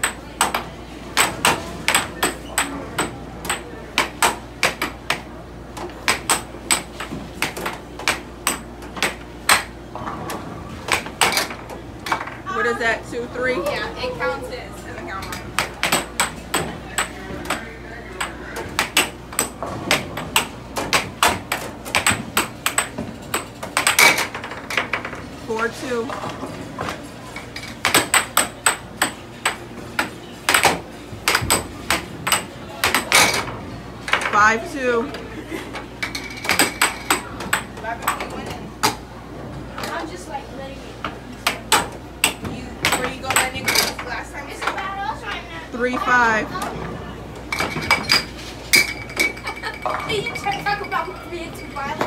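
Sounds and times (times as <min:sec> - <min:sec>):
air hockey puck clacking: 0:00.0 - 0:12.4, 0:15.0 - 0:25.3, 0:26.2 - 0:34.5, 0:35.7 - 0:39.0, 0:41.0 - 0:44.9.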